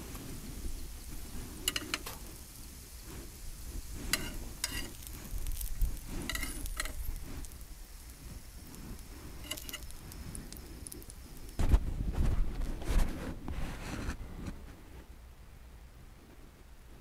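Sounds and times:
meat sizzling: 0:00.0 - 0:12.7
metal tongs scraping on iron: 0:01.6 - 0:02.2, 0:04.0 - 0:07.1, 0:09.3 - 0:10.0.

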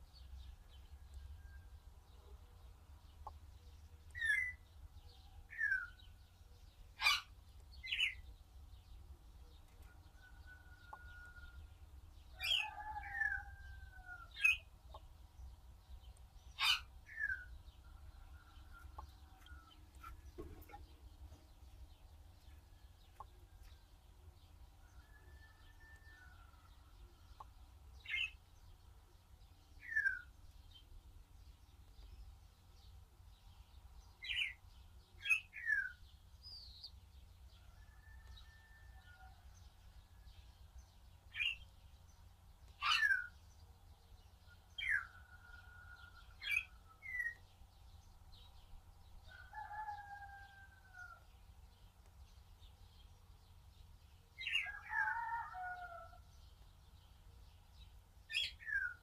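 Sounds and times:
birds chirping: 0:00.0 - 0:37.0.

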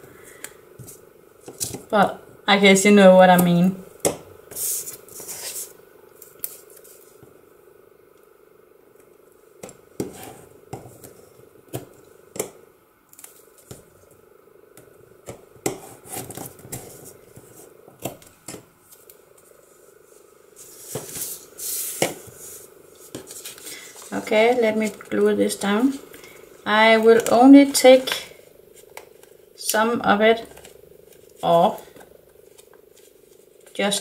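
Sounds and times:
faint steady hum: 0:00.0 - 0:34.0
paper rustling: 0:04.5 - 0:07.2, 0:20.6 - 0:26.0, 0:30.4 - 0:34.0.

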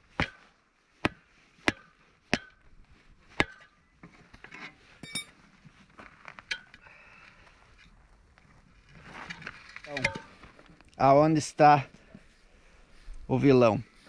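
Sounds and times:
metal tools clinking and rattling: 0:04.4 - 0:05.4.

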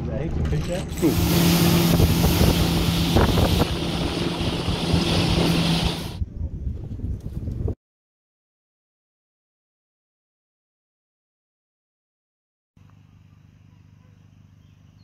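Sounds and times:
outboard motor running: 0:00.0 - 0:06.2
heavy wind: 0:00.3 - 0:07.8.

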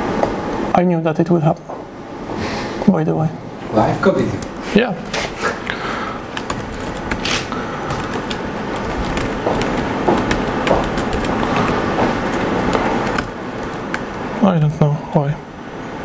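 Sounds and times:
rushing room noise: 0:00.0 - 0:16.0
laptop keystrokes: 0:05.6 - 0:14.2.

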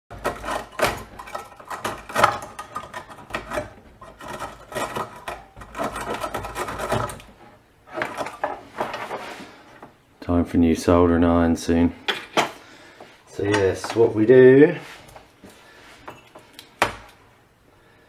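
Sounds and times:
scraping and rubbing strokes: 0:00.2 - 0:09.7.

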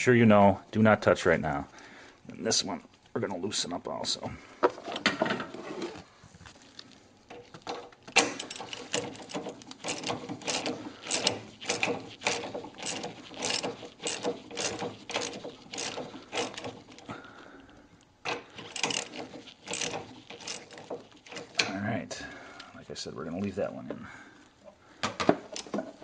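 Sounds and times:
hand ratchet clicking: 0:07.3 - 0:17.2, 0:18.2 - 0:21.8, 0:25.5 - 0:25.9.

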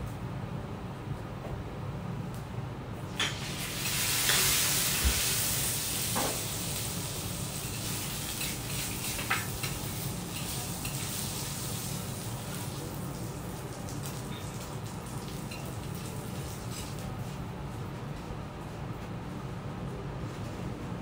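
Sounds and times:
meat sizzling on griddle: 0:03.1 - 0:14.2.

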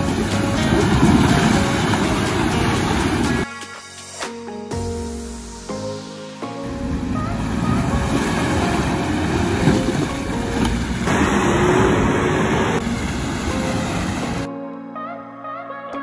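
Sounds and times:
tyres rumbling through mud: 0:00.0 - 0:03.4, 0:06.7 - 0:14.5
diesel engine running: 0:06.7 - 0:14.5.

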